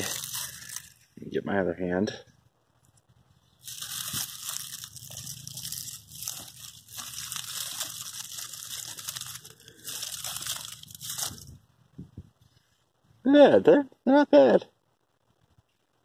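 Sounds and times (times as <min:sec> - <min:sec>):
hands digging through soil: 0:00.0 - 0:01.0, 0:03.6 - 0:11.6.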